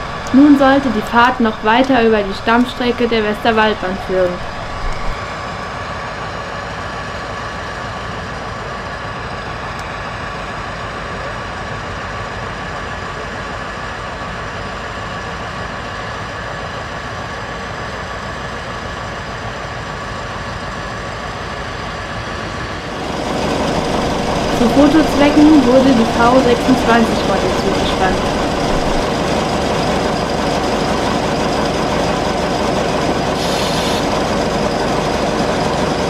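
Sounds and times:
railbus diesel engine running: 0:00.0 - 0:36.0
faint constant whine: 0:23.0 - 0:29.2.

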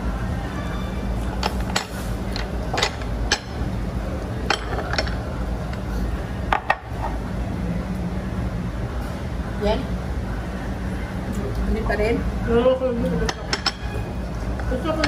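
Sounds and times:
steady low hum: 0:00.0 - 0:15.0
tableware clicking and clinking: 0:00.7 - 0:03.6, 0:04.4 - 0:05.2, 0:13.1 - 0:15.0.

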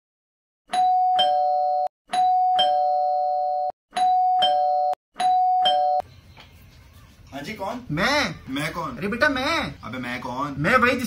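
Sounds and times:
two-tone doorbell chime: 0:00.7 - 0:06.0.

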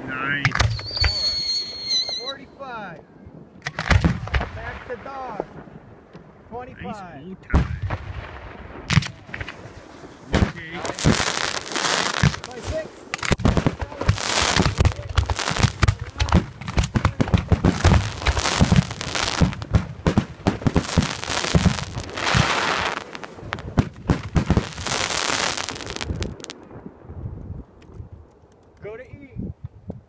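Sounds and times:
fireworks crackling: 0:00.5 - 0:02.3, 0:03.6 - 0:05.8, 0:06.9 - 0:27.0
firework shells booming: 0:03.6 - 0:06.4, 0:07.5 - 0:27.1.

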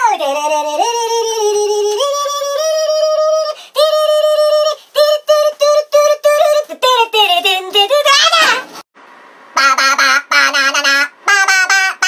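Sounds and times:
person singing: 0:00.0 - 0:08.7.

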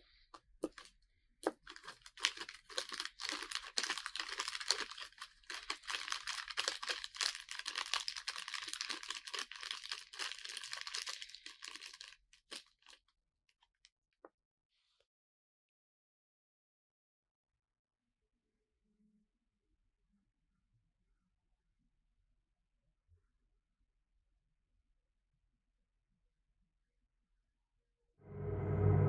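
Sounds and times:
plastic bag crinkling: 0:00.6 - 0:00.9, 0:01.5 - 0:13.1.

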